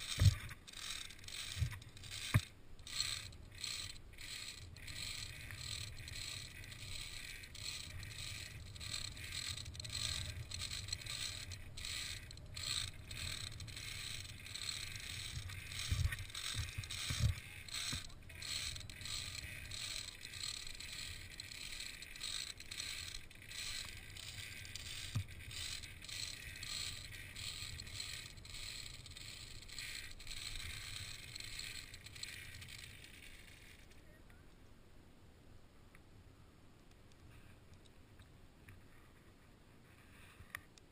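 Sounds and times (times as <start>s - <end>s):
metallic clicks and scrapes: 0.0s - 34.1s.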